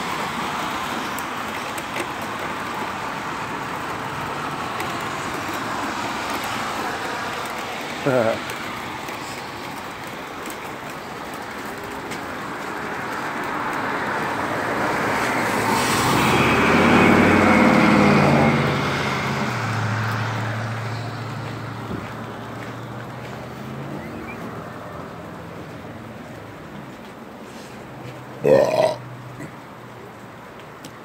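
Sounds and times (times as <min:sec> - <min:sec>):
car driving past on wet road: 0:12.5 - 0:26.8.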